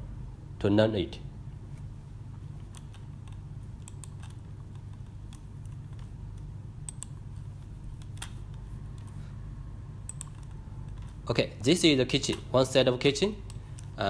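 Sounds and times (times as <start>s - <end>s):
low room and computer hum: 0.0s - 14.0s
computer clicks: 2.7s - 7.2s, 10.0s - 11.2s.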